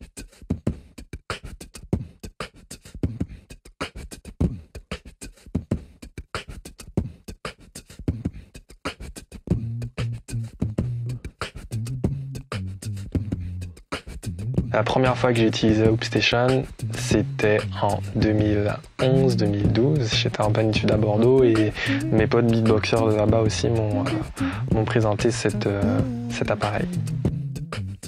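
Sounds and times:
beatboxing into a microphone: 0.0s - 28.0s
low vocal bass notes: 9.6s - 11.2s, 11.9s - 13.7s, 14.4s - 28.0s.

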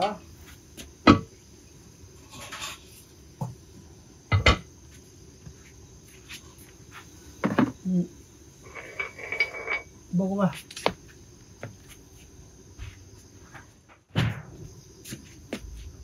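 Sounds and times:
insects chirping: 0.0s - 16.0s
feeding bowls clinking and knocking: 8.7s - 9.9s.

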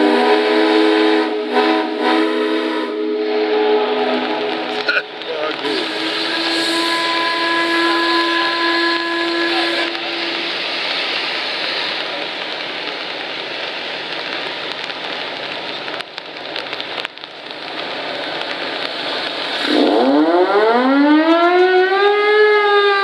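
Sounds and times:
steam whistle blast: 0.0s - 4.8s, 5.7s - 10.7s, 19.6s - 23.0s
steam hissing from vents: 0.0s - 23.0s.

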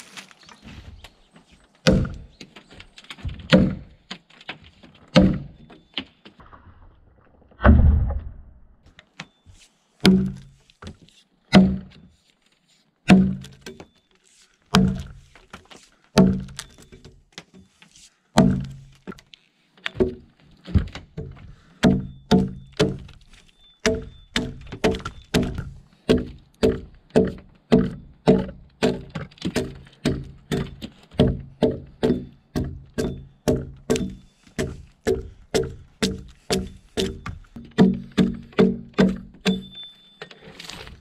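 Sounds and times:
axe chopping into log: 1.9s - 2.3s, 5.1s - 5.5s, 10.0s - 10.5s, 11.5s - 11.9s, 13.1s - 13.7s, 14.7s - 15.2s, 16.2s - 16.7s, 23.8s - 39.7s.

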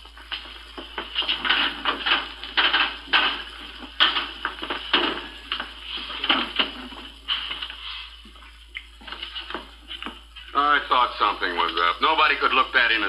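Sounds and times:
drawers and dishes clattering: 1.2s - 7.6s.

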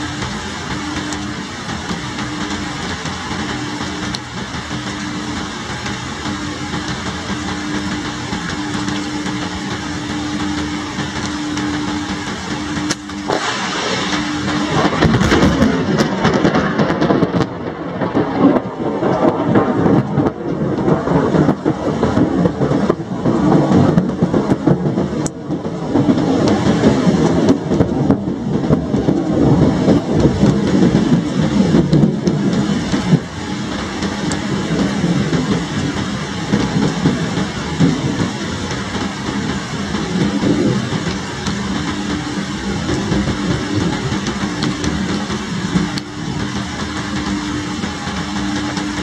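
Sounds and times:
heavy rain pouring: 0.0s - 49.0s
low mechanical hum: 0.0s - 49.0s
sharp ticks of raindrops: 0.0s - 49.0s.

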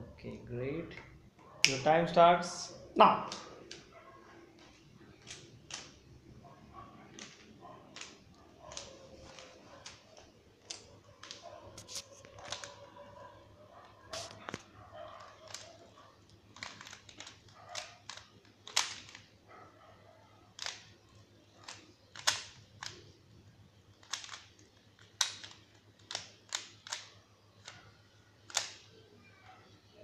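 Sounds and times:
puzzle cube clicking: 3.2s - 3.9s, 4.5s - 6.4s, 7.1s - 12.9s, 14.1s - 19.4s, 20.5s - 23.3s, 23.9s - 28.9s.

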